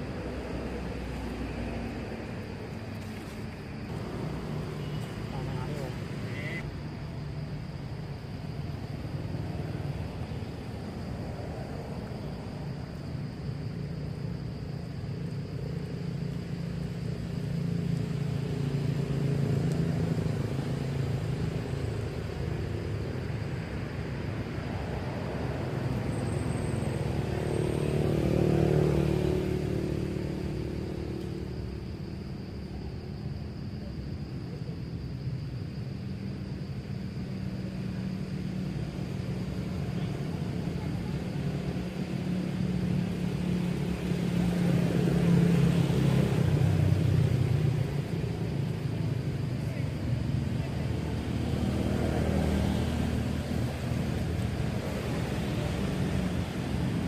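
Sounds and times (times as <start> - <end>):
vehicle passing: 0.0 - 6.6, 24.8 - 31.5, 41.5 - 57.0
motor traffic: 0.0 - 33.2, 35.4 - 57.0.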